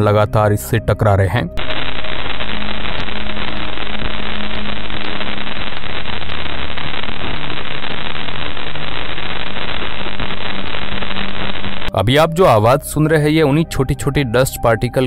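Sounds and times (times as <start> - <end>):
dense steady static hiss: 1.6 - 13.1.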